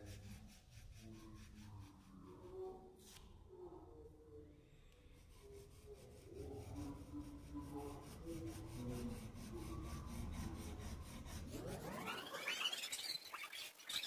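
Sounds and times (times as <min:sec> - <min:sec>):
pencil rubbing on paper: 0:00.0 - 0:03.2, 0:05.1 - 0:14.0
rising pitch sweep: 0:11.5 - 0:13.8.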